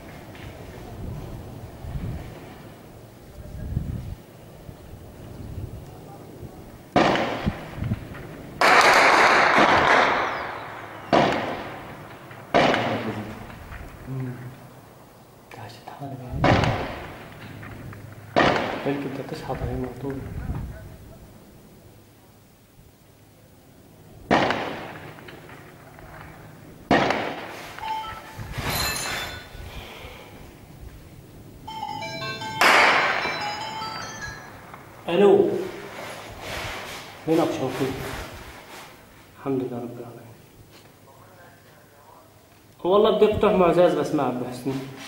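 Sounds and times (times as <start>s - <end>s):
echoing gunshots: 6.9s - 13.7s, 16.4s - 19.4s, 24.3s - 27.8s, 32.6s - 33.4s.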